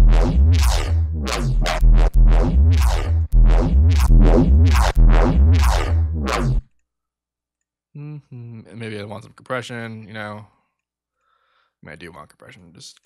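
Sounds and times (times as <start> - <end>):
synth bass notes: 0.0 - 6.7.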